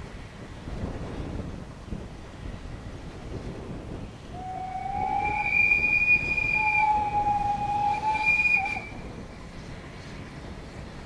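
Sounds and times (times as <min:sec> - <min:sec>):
train rumble: 0:00.0 - 0:11.0
train whistle blast: 0:04.4 - 0:09.0.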